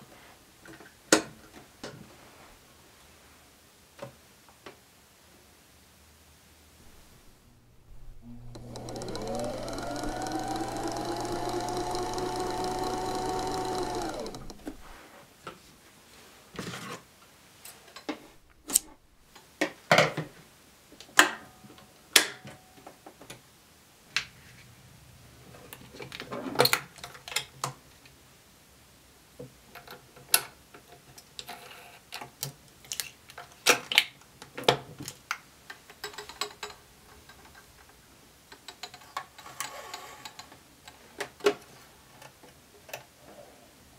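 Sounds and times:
sewing machine motor whining: 6.9 - 15.0
plastic parts clicking and knocking: 7.8 - 14.9.

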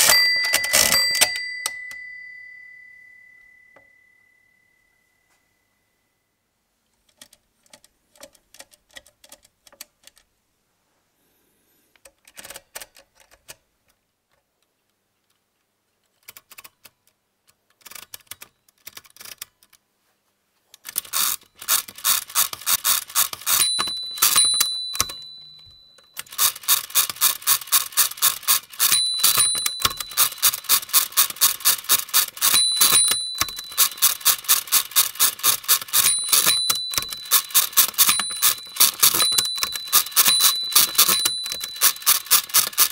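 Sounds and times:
hand crank clattering: 0.0 - 1.8, 20.9 - 25.6, 26.2 - 42.9
bell dinging: 0.0 - 5.6, 23.5 - 26.1, 28.8 - 31.0, 32.4 - 34.2, 35.9 - 42.9.

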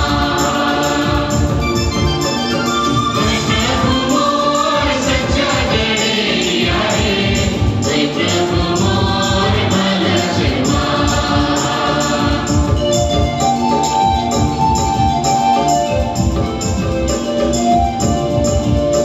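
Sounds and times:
choir singing a hymn: 0.0 - 2.4, 3.1 - 14.1
instrumental accompaniment with beat: 0.0 - 19.0.

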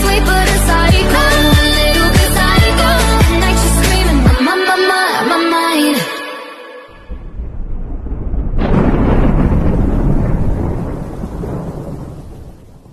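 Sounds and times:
loud boom: 6.9 - 12.7
deep thunder-like rumble: 7.0 - 12.9.

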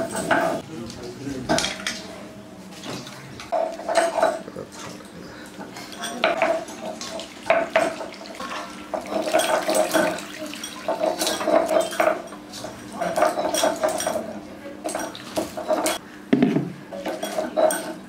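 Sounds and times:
metal utensils clattering and scraping: 0.0 - 0.6, 3.5 - 16.0, 16.9 - 18.0.

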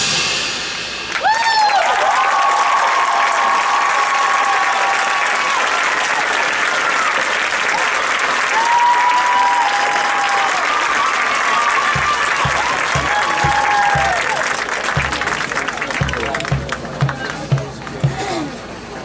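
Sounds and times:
audience applauding and cheering: 1.0 - 18.1
low thumps: 12.0 - 14.4, 15.0 - 18.3.

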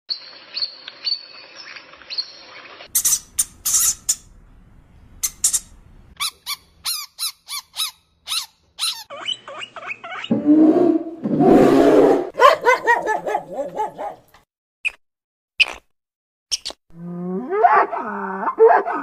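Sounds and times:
guinea pig squeaking: 2.9 - 4.3, 5.2 - 10.4
parrot screeching: 3.0 - 4.2, 5.2 - 10.4.

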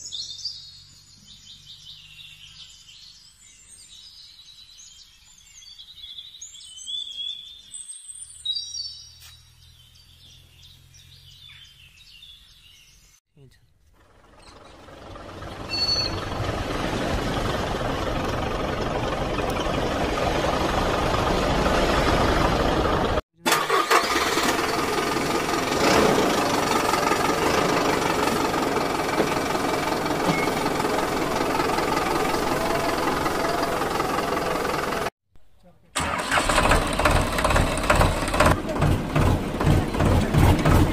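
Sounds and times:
vehicle engine running: 14.0 - 35.1, 36.0 - 40.9.

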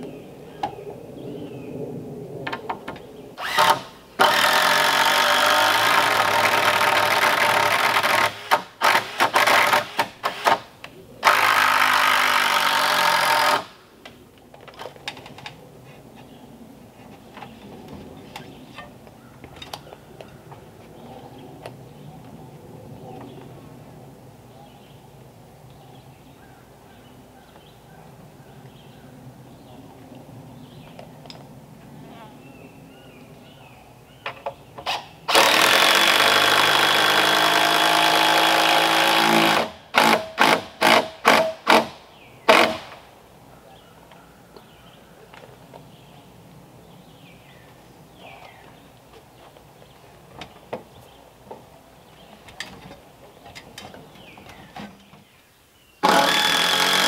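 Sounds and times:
handheld power tool running: 35.3 - 40.2, 56.0 - 57.0.

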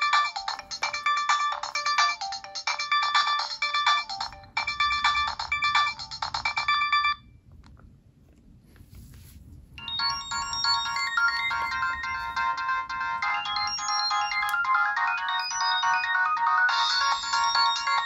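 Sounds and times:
polyphonic phone ringtone: 0.0 - 7.3, 9.8 - 18.0.

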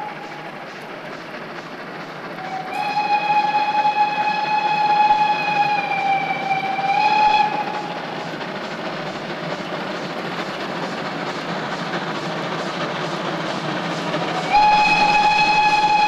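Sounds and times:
steam locomotive whistle: 0.0 - 0.6, 2.4 - 8.2, 14.3 - 16.0
locomotive exhaust chuffing: 0.0 - 16.0.

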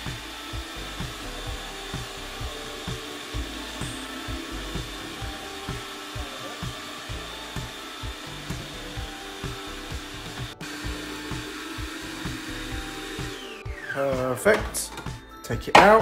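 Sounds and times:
food processor motor running: 0.0 - 14.3.

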